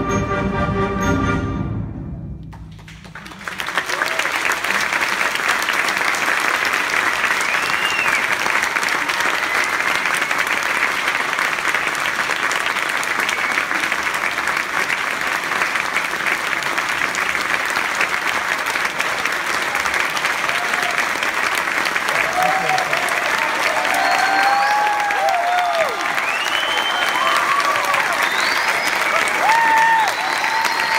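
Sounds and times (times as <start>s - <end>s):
large audience applauding: 2.5s - 30.9s.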